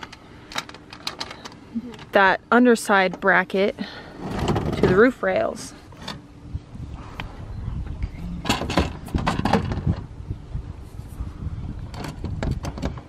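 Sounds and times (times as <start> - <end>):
low steady rumble: 0.0 - 13.0
metal frame clanking and knocking: 8.4 - 10.0.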